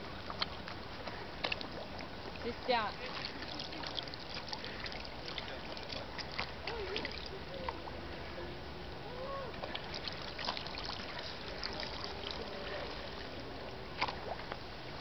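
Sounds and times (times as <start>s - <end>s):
water noise: 0.0s - 15.0s
small splashes and drips: 0.3s - 7.9s, 9.4s - 15.0s
dog lapping water: 1.4s - 7.3s, 9.6s - 13.0s.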